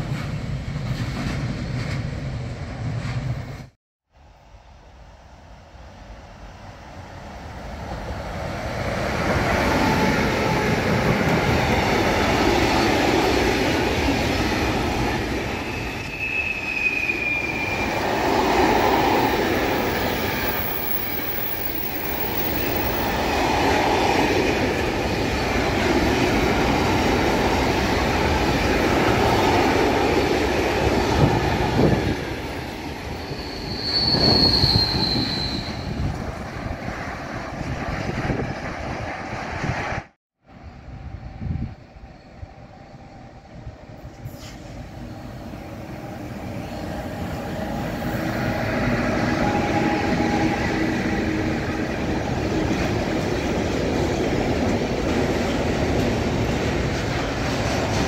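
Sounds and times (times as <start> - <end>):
train wheels rolling on rails: 0.0 - 3.8, 7.2 - 40.0, 41.6 - 58.0
high-pitched wheel squeals: 15.5 - 18.2, 33.1 - 36.1.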